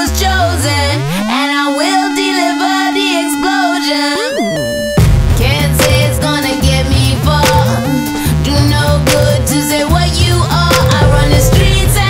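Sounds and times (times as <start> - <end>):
wavering melodic lines: 0.8 - 12.0
deep bass note sliding: 4.6 - 12.0.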